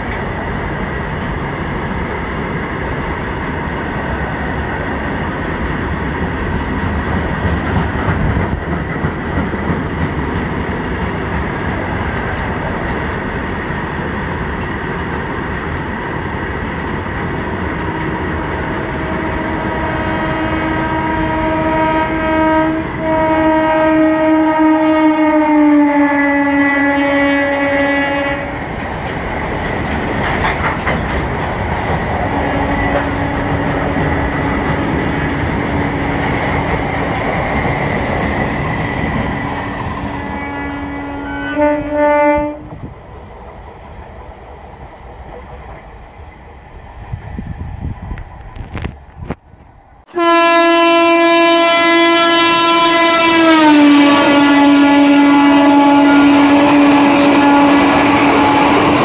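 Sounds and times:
train rumbling on tracks: 0.0 - 59.0
train horn blasts: 17.8 - 29.0, 32.2 - 36.4, 40.0 - 42.8, 50.1 - 59.0.

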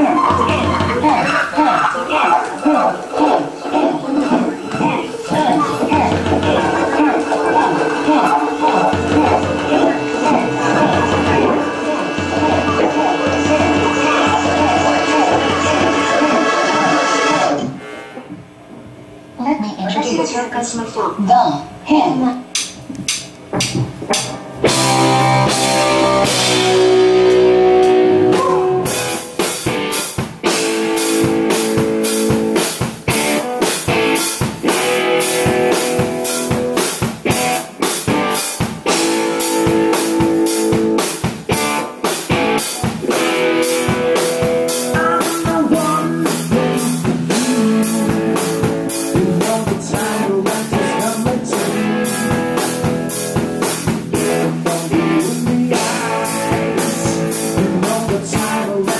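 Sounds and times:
drum kit beat: 0.0 - 17.5, 22.4 - 58.9
man singing: 0.0 - 17.5, 44.8 - 52.8, 54.2 - 58.9
rock band playing: 0.0 - 17.8, 23.5 - 58.9.

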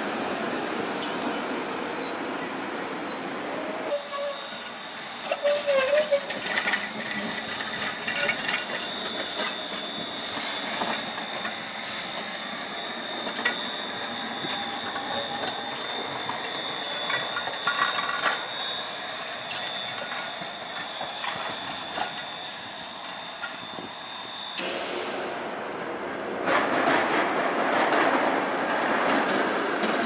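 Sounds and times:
streetcar rolling along track: 0.0 - 30.0
clicks and knocks of wheels: 5.2 - 12.3, 13.0 - 22.3
steady high-pitched whine: 6.4 - 26.4.

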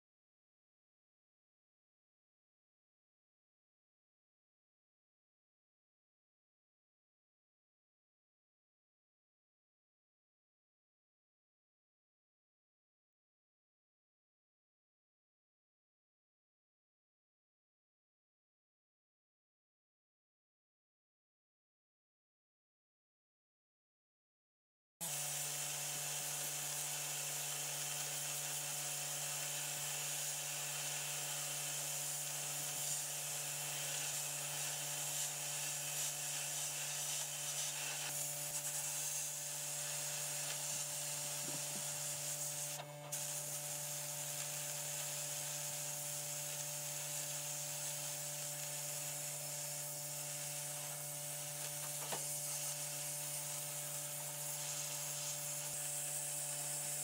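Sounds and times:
power tool grinding: 25.0 - 57.0.

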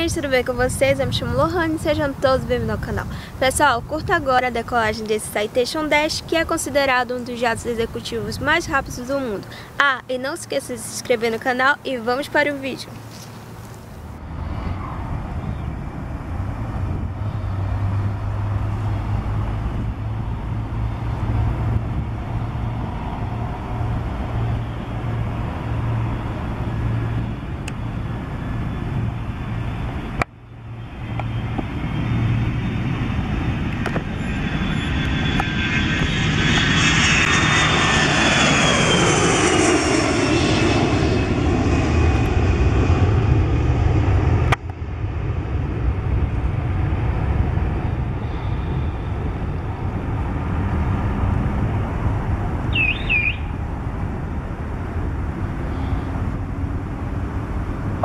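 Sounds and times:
jet engines taking off: 0.0 - 58.0
low hum: 0.0 - 58.0.

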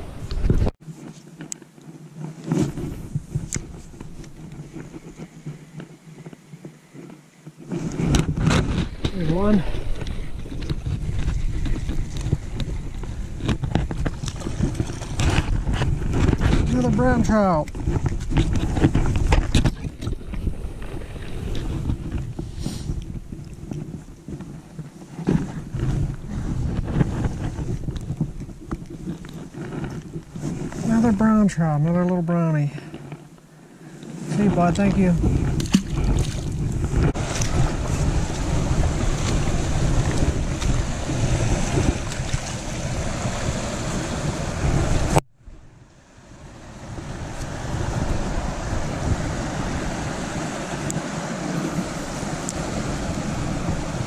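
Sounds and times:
wind buffeting microphone: 2.3 - 33.5, 34.1 - 54.0
creek water rushing: 34.2 - 54.0.

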